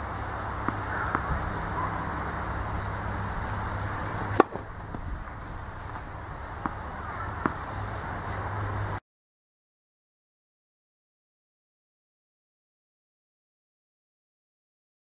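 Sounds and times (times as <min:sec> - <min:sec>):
tennis racket striking ball: 0:04.2 - 0:05.0, 0:05.9 - 0:08.4.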